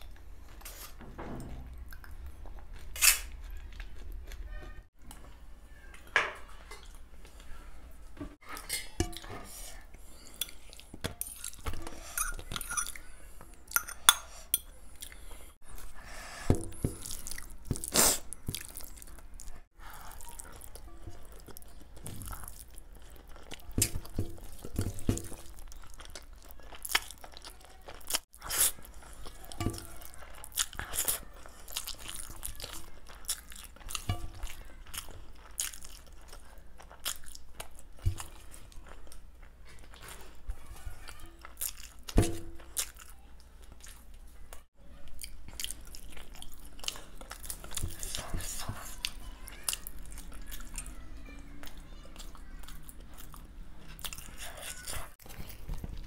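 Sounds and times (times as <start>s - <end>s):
metal spoon scraping plate: 11.2s - 13.0s.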